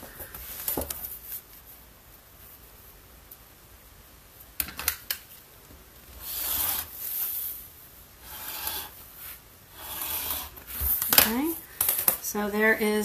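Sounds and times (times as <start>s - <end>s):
rotary cutter rasping through fabric: 9.8s - 10.6s.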